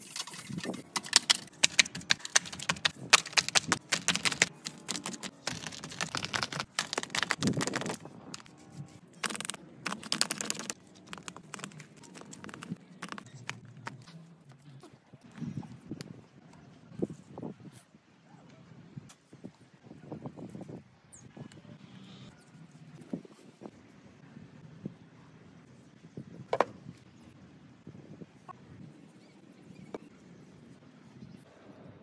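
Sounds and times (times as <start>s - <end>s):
hands squelching wet clay: 1.0s - 14.1s.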